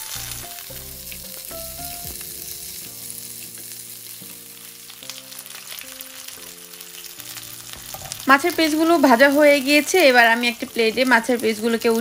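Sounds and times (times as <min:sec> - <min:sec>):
fish sizzling in oil: 0:00.0 - 0:12.0
soft background music: 0:00.0 - 0:12.0.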